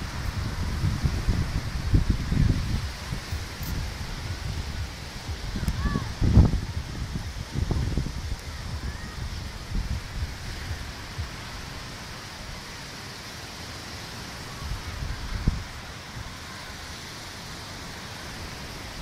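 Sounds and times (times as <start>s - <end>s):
wind buffeting microphone: 0.0s - 12.6s, 14.6s - 17.0s
surf breaking on a beach: 0.0s - 19.0s.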